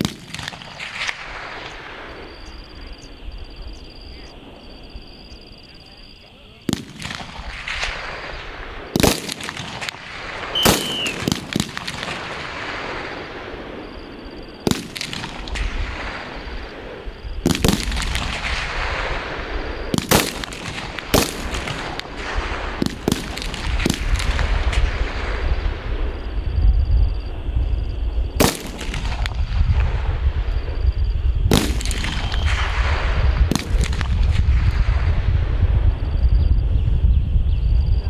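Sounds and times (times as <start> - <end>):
gunshots with echo: 6.7 - 25.6, 28.4 - 30.0, 31.5 - 35.6.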